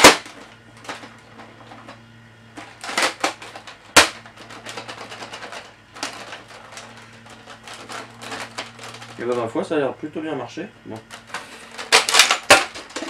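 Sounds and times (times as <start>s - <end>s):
faint steady hum: 0.0s - 13.0s
toy blaster plastic clacks: 11.8s - 13.0s.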